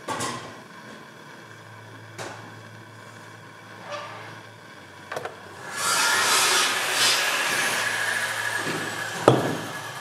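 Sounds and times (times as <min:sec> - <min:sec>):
blowtorch flame hissing: 0:05.5 - 0:10.0.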